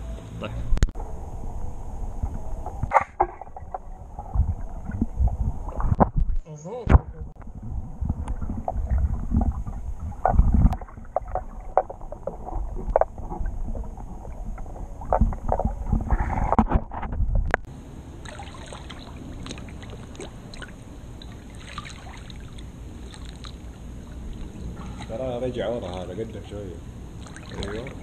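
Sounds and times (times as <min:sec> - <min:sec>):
churning water underwater: 0:00.8 - 0:06.4, 0:07.2 - 0:28.0
muffled underwater knocks: 0:08.0 - 0:17.7
light water splashing: 0:18.2 - 0:28.0.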